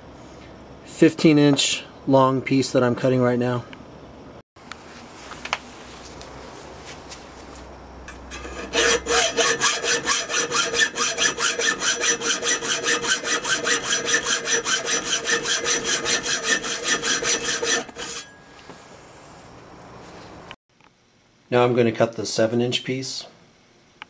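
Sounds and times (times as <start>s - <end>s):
hacksaw cutting steel tubing: 8.1s - 18.4s.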